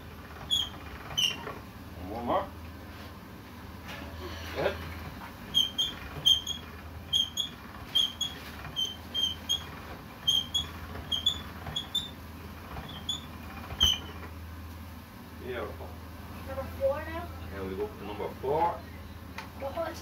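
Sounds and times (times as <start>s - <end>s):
pasta roller crank squeaking: 0.2s - 1.6s, 5.5s - 14.3s.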